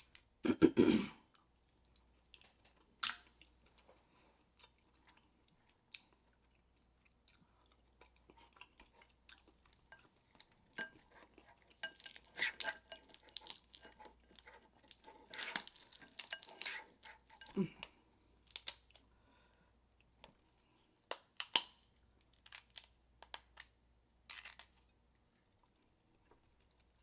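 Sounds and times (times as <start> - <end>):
crab shell cracking: 21.1 - 23.7.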